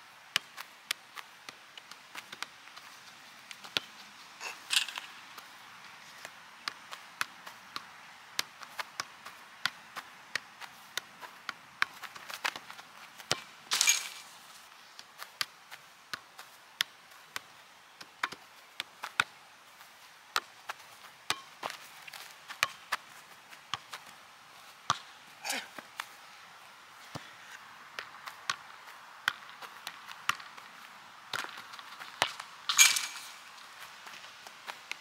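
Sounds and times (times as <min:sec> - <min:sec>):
soccer ball kicks: 0:04.8 - 0:14.3, 0:15.0 - 0:24.1, 0:27.9 - 0:35.0.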